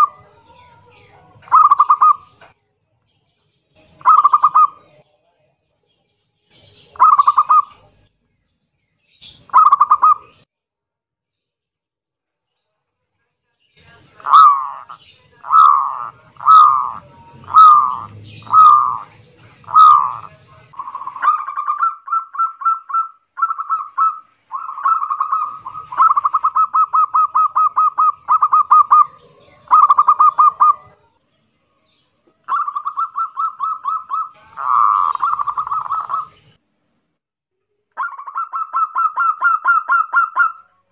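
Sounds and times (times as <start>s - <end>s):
dove harsh cooing and rattling: 14.2s - 30.9s, 32.5s - 36.4s.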